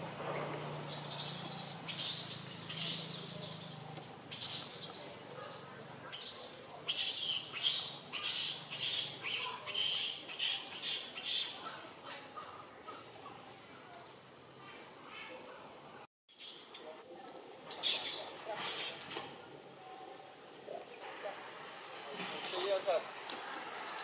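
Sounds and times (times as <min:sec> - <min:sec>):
baby monkey distress cries: 0:06.1 - 0:11.6.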